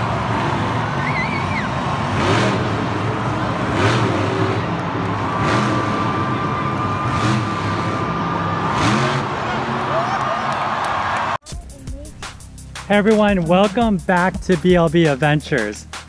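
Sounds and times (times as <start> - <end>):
truck engine revving: 0.0 - 11.4.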